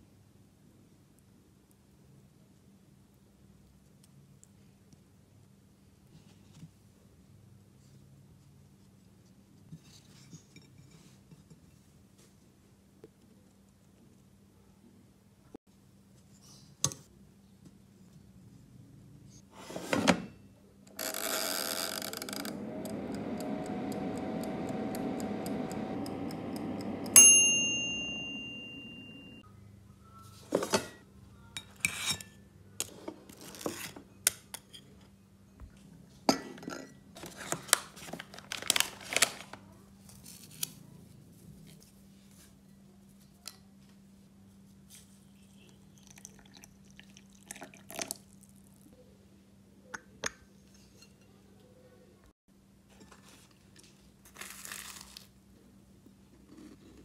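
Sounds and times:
kitchen appliance humming: 21.0 - 29.4
timer bell ding: 27.2 - 29.4.

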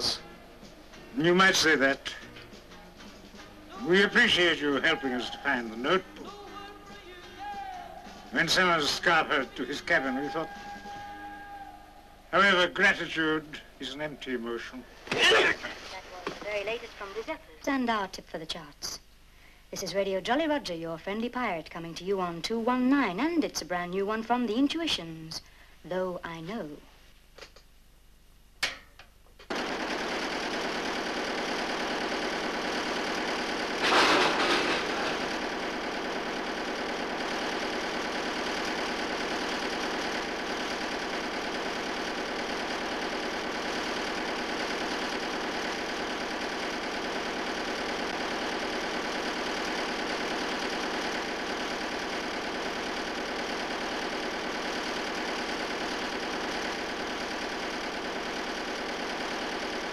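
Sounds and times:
engine-driven machinery running: 29.6 - 59.9
brief loud mechanical burst: 33.8 - 35.2.

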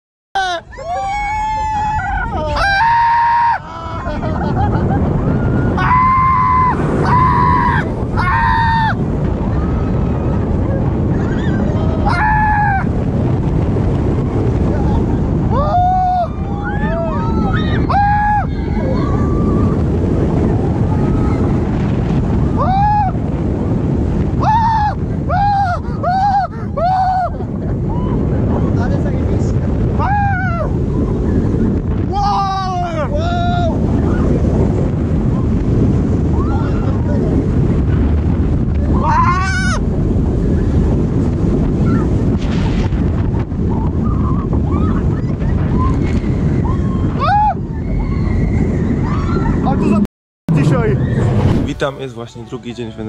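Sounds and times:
riders screaming: 0.4 - 4.2, 5.3 - 10.0, 11.2 - 13.0
wind rushing over microphone: 0.4 - 53.0
rider screaming: 11.3 - 13.0
faint distant screams: 50.6 - 51.5.

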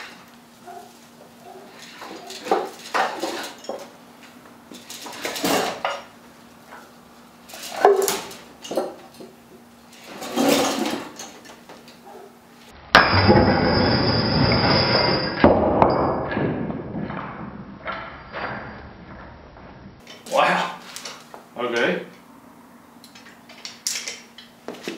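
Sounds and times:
weights crashing on concrete floor: 2.0 - 3.9, 4.8 - 6.1, 14.8 - 19.0.

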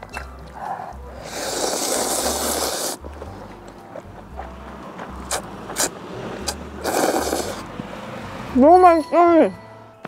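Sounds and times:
loud slurp: 1.2 - 3.4, 5.2 - 7.7
wet mouth clicks chewing: 5.2 - 5.9, 6.5 - 7.6.

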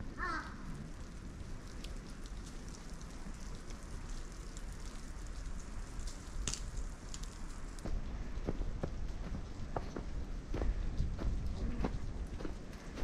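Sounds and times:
steady outdoor hiss: 0.0 - 13.0
footsteps in snow: 7.8 - 13.0.

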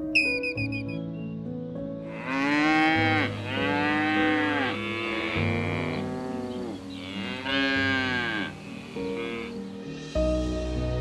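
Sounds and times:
cattle mooing: 2.1 - 9.6.

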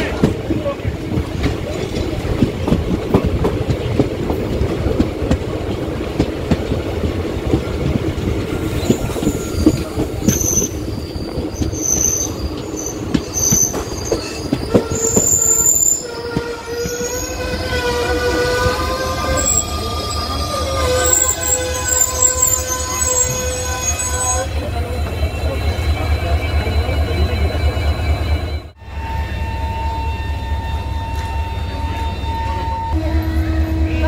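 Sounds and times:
train rumbling on track: 0.0 - 34.0
high-pitched wheel squeals: 8.5 - 33.5.

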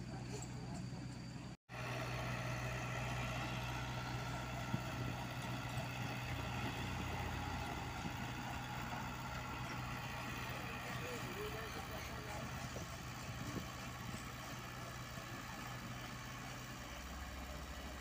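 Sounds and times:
dump truck engine running: 0.0 - 18.0.

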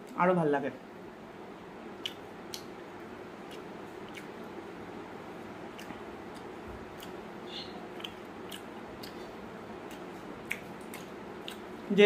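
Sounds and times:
steady low hum: 0.0 - 12.0
person chewing: 2.0 - 2.7, 3.4 - 4.4, 5.6 - 7.3, 7.9 - 11.9.

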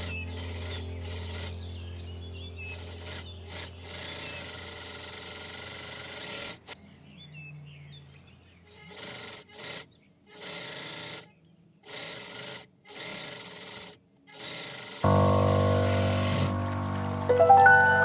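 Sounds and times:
overlock sewing machine stitching: 0.0 - 1.6, 2.7 - 6.8, 8.7 - 16.5.

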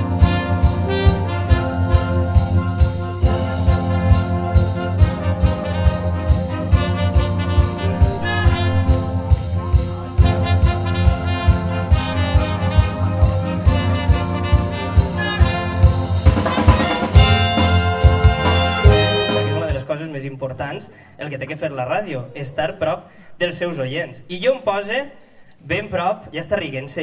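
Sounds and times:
brass and reeds holding chords: 0.0 - 19.9
drum kit steady beat: 0.0 - 19.9.

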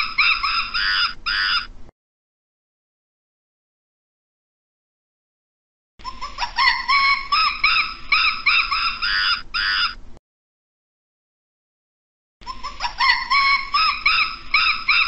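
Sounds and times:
primate whooping: 0.0 - 1.7, 6.0 - 10.0, 12.4 - 15.0.

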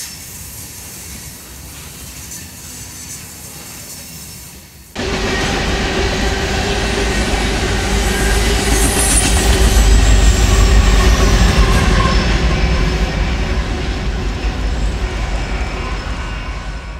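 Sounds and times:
freight cars rolling on rails: 5.0 - 16.9.

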